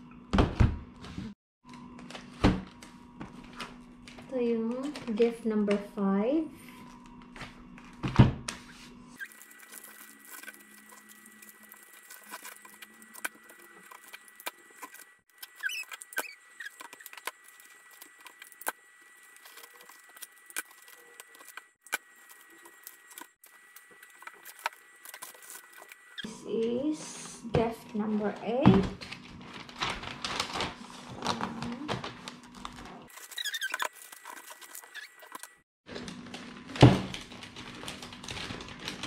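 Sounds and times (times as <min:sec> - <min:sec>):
wrapping paper crackling: 0:09.2 - 0:26.2, 0:29.0 - 0:39.0
squeaky chirps: 0:15.4 - 0:17.2, 0:33.2 - 0:34.0, 0:34.7 - 0:35.4.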